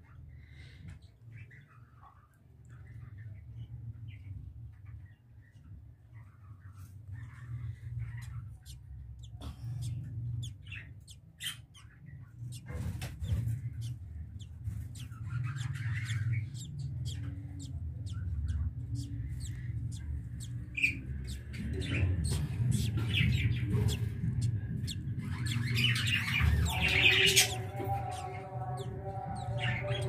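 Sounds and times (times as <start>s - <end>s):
budgerigars chirping and squawking: 6.6s - 30.0s
low rumble: 12.2s - 30.0s.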